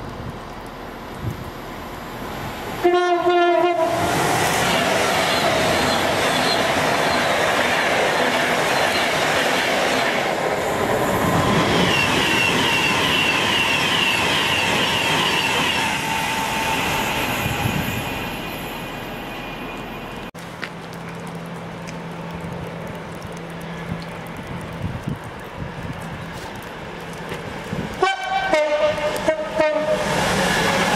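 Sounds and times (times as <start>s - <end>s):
train wheels rushing on rail: 3.5s - 20.1s, 27.2s - 30.9s
high squeals: 11.2s - 20.2s.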